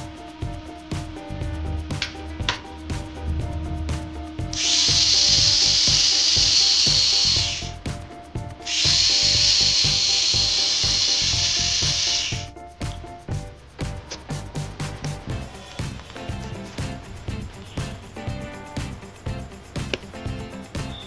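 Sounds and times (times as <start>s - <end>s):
gear motor whine and rasp: 1.2s - 7.8s, 8.7s - 12.5s.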